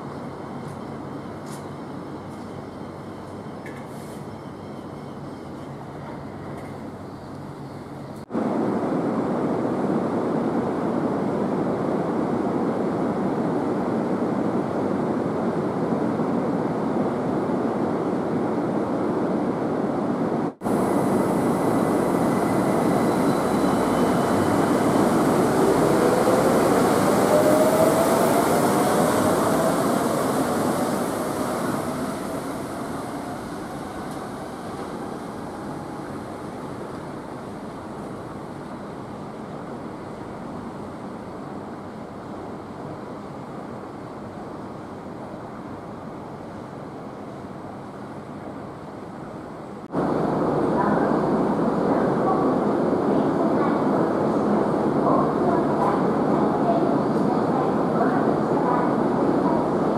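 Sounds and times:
monorail train passing: 0.0s - 59.9s
steady rushing noise: 8.3s - 39.2s, 49.8s - 59.9s.

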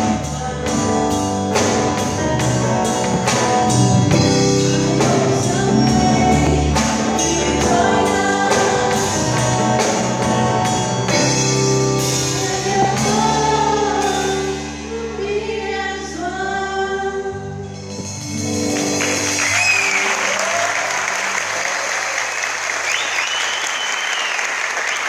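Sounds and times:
keyboard and band accompaniment: 0.0s - 25.0s
women singing: 4.6s - 10.2s, 12.2s - 17.6s
audience applause: 18.8s - 25.0s.

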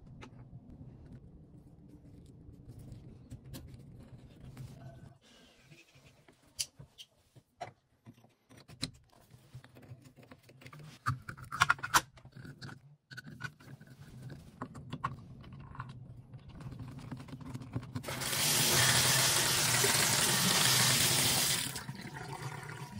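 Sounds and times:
shower water rushing: 18.0s - 22.8s.

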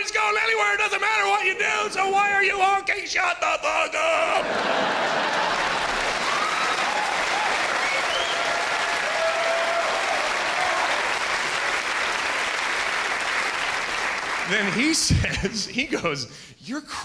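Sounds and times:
crowd cheering: 4.1s - 15.1s
crowd clapping: 4.4s - 15.2s.

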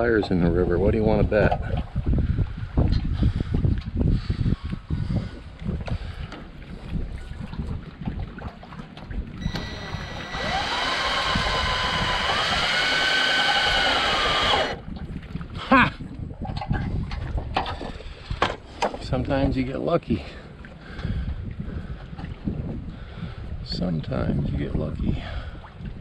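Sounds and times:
wind buffeting microphone: 0.0s - 26.0s
cordless drill motor whine: 9.4s - 14.8s.

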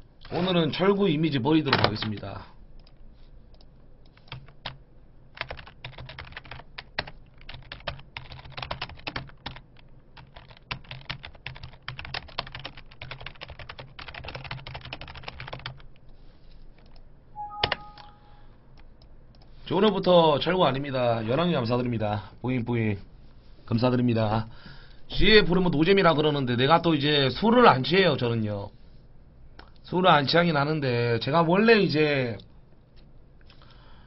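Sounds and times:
keyboard typing: 5.4s - 15.8s, 16.8s - 18.3s
short beep: 17.4s - 18.4s.

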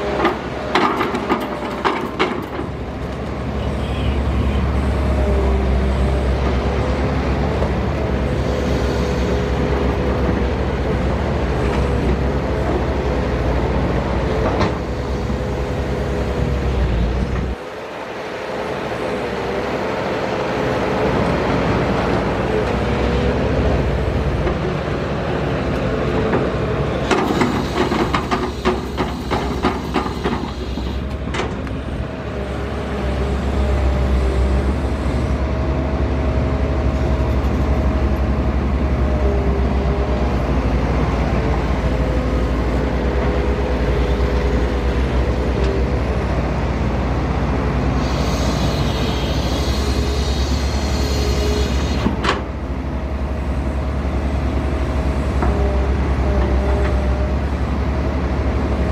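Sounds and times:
excavator diesel engine droning: 0.0s - 58.9s
hydraulic whine: 27.0s - 31.2s, 47.9s - 52.4s.

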